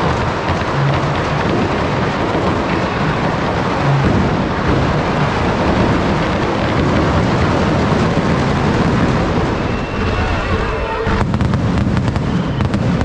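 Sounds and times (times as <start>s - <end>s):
firecrackers crackling: 0.0s - 13.0s
thundering rumble: 0.0s - 13.0s.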